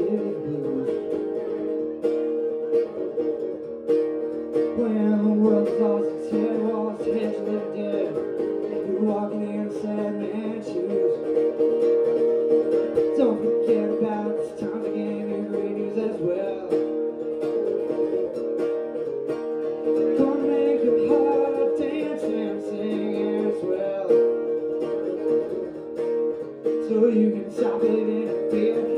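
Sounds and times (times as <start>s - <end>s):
man singing into a microphone: 0.0s - 1.2s, 4.7s - 11.6s, 13.0s - 17.0s, 20.0s - 24.6s, 26.7s - 28.9s
acoustic guitar strumming: 0.0s - 28.9s.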